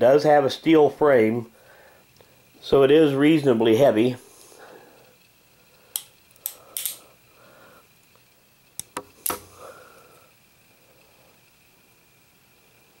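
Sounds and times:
revolver hammer clicking: 0:05.9 - 0:07.0, 0:08.2 - 0:09.6.

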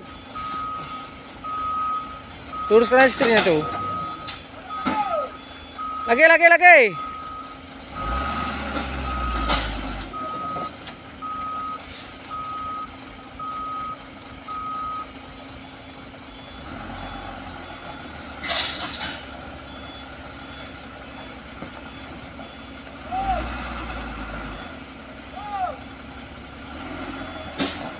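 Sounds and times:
diesel truck engine rumble: 0:00.0 - 0:27.9
truck reverse beeper: 0:00.0 - 0:27.9.

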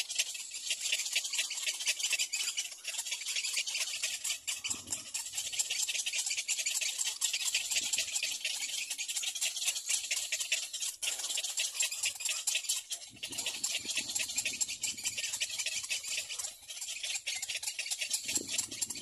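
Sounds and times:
rapid chirring animal chorus: 0:00.0 - 0:19.0.

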